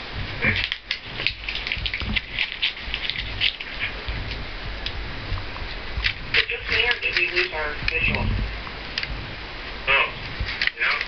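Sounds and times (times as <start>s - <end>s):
low steady hum: 0.0s - 11.0s
paper crinkling: 0.4s - 5.0s, 10.3s - 11.0s.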